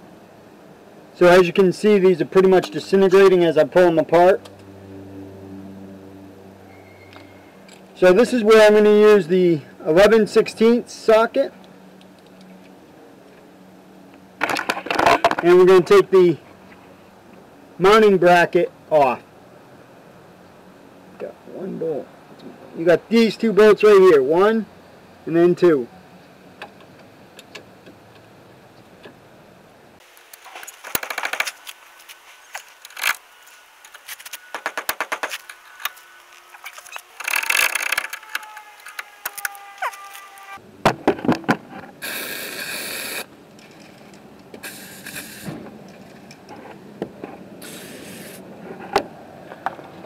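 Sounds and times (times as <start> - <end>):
aerosol spray hiss: 42.0 - 43.3, 44.6 - 45.6, 47.6 - 48.4.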